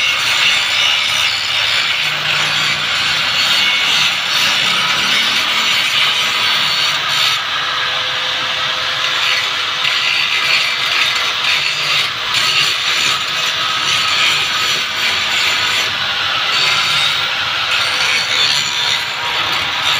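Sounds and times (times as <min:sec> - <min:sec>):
angle grinder grinding steel: 0:00.0 - 0:19.9.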